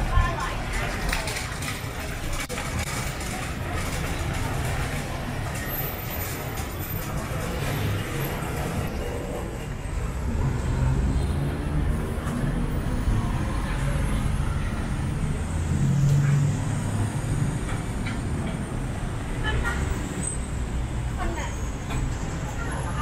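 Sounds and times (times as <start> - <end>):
people talking: 0.0 - 9.5, 21.2 - 21.7, 22.4 - 23.0
street traffic rumble: 0.0 - 23.0
vehicle engine: 0.0 - 23.0.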